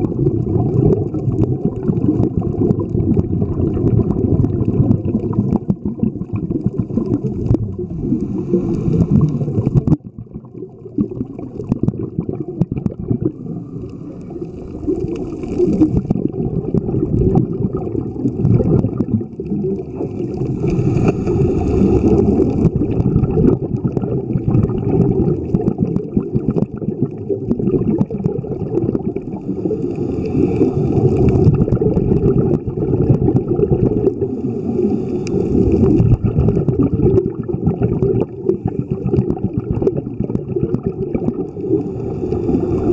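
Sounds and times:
underwater rumble of moving water: 0.0s - 42.9s
hissing rush of water: 6.8s - 9.8s, 13.3s - 16.1s, 19.7s - 23.0s, 29.2s - 31.7s, 33.9s - 36.2s, 41.3s - 42.9s.

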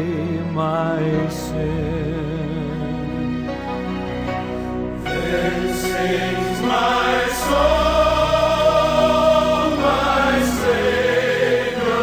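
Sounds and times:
voices singing a slow hymn: 5.0s - 12.0s.

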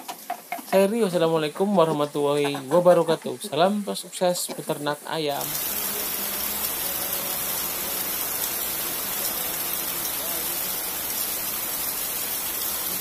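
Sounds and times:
heavy rain on leaves: 5.4s - 13.0s.

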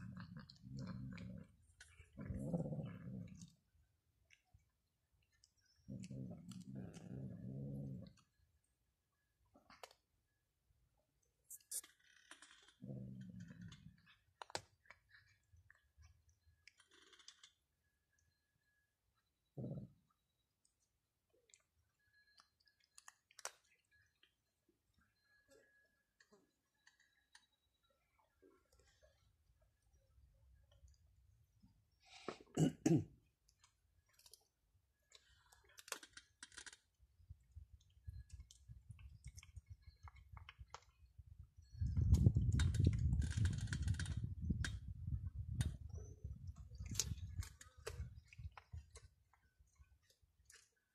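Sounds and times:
cats crunching dry food: 0.0s - 3.6s, 11.6s - 15.6s, 22.6s - 23.7s, 33.5s - 41.2s, 42.0s - 45.9s, 46.6s - 50.8s.

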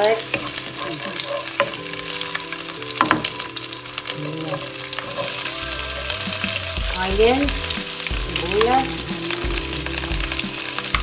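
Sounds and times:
garlic sizzling in oil: 0.0s - 11.0s
spoon scraping a pan: 4.4s - 5.6s.

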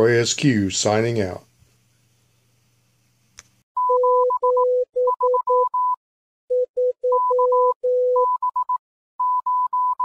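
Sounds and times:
electronic beeps in morse code: 3.8s - 10.0s.

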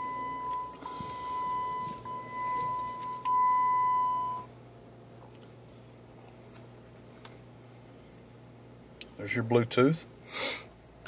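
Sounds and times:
electronic warning chime: 0.0s - 4.5s.

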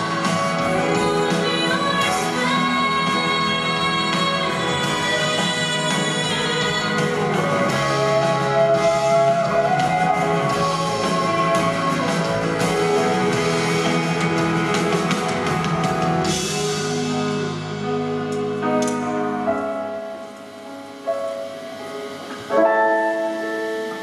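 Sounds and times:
drum kit: 0.0s - 24.0s
electric guitar: 0.0s - 24.0s
live band playing: 0.0s - 24.0s.

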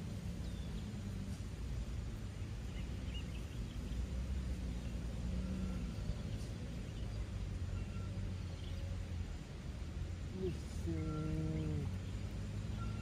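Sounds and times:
low outdoor rumble: 0.0s - 13.0s
faint high chirps: 2.7s - 9.2s, 10.3s - 13.0s.

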